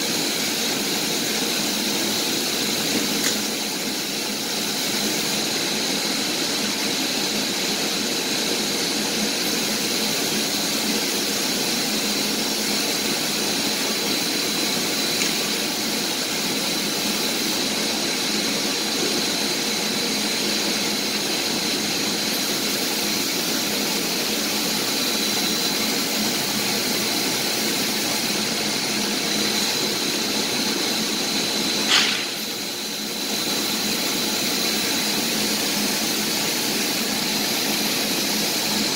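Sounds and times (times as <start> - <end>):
machinery hum and hiss: 0.0 - 38.9
thin high whine: 12.8 - 38.9
sharp click: 31.9 - 32.5.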